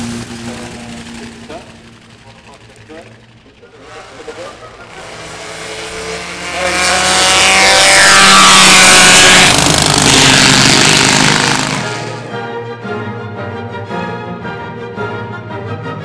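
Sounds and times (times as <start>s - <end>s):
racing cars passing: 0.0s - 12.3s
music: 12.2s - 16.0s.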